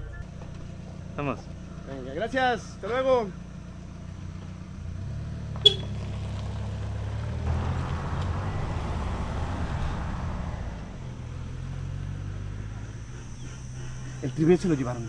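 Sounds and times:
low engine hum: 0:00.0 - 0:15.0
van passing close: 0:04.8 - 0:15.0.

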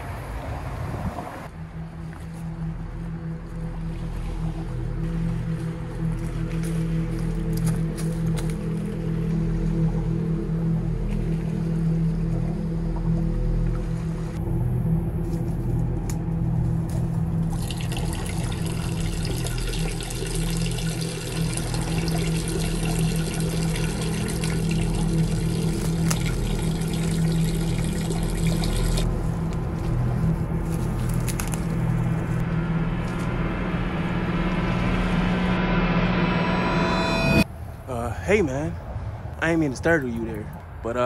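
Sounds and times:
steady low hum: 0:00.0 - 0:40.8
man urinating: 0:17.3 - 0:29.1.

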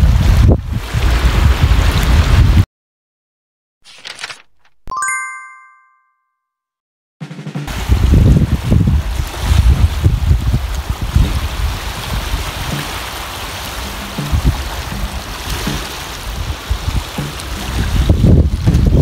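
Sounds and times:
wind buffeting microphone: 0:00.0 - 0:02.6, 0:07.7 - 0:19.0
waves lapping on pebbly shore: 0:07.7 - 0:19.0.

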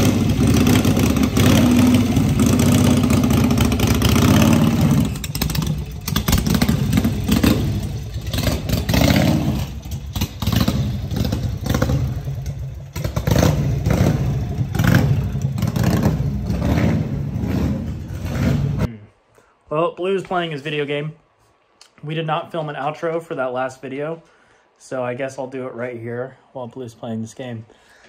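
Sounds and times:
motorcycle engine revving: 0:00.0 - 0:18.9.

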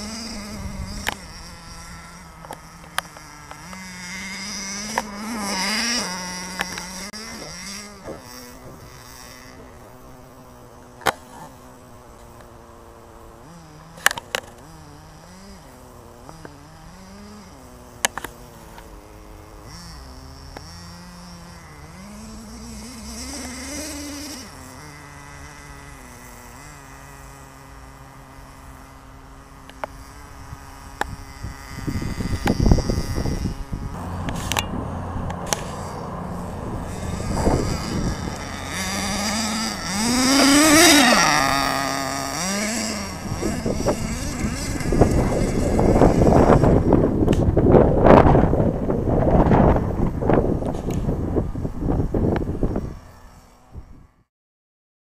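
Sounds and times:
small nitro engine revving: 0:00.0 - 0:54.3
wind buffeting microphone: 0:30.2 - 0:53.1.

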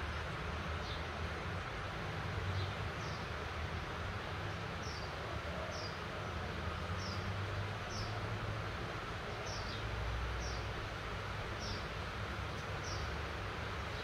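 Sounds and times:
rain falling: 0:00.0 - 0:14.0.

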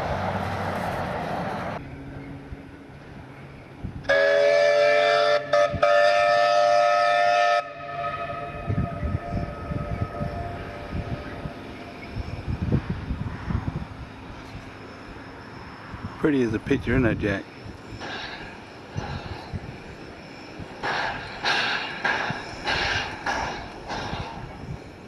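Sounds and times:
steam locomotive whistle: 0:04.1 - 0:11.4.

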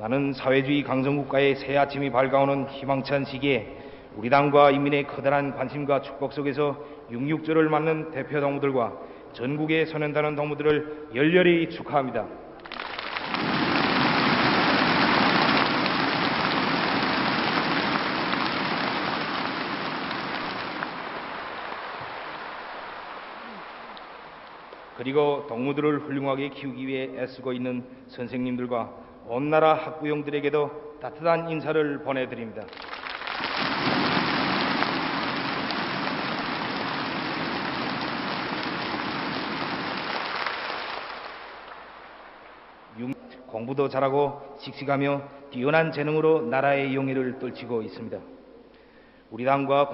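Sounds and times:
large audience applauding: 0:12.6 - 0:25.0, 0:32.7 - 0:42.0.

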